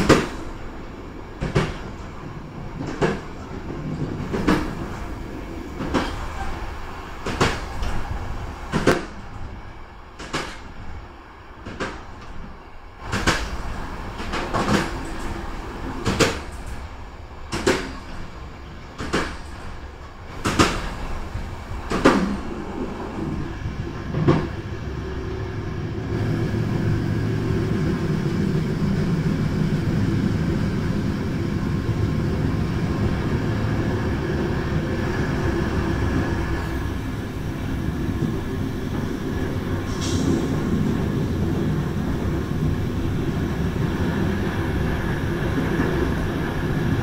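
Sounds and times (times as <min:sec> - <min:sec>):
train rolling rumble: 0:00.0 - 0:47.0
train wheels clacking over joints: 0:02.8 - 0:05.2, 0:05.8 - 0:09.5, 0:10.2 - 0:10.8, 0:11.6 - 0:23.4.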